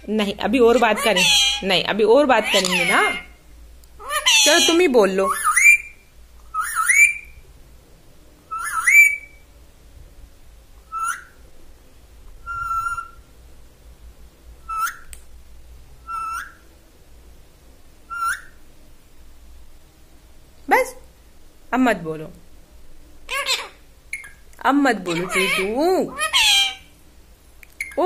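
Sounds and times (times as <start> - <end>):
parakeet whistled calls: 1.0 - 1.6, 4.0 - 7.4, 8.5 - 9.4, 10.9 - 11.4, 12.4 - 13.2, 14.6 - 15.1, 16.0 - 16.6, 18.1 - 18.6, 23.3 - 24.4, 25.2 - 26.9.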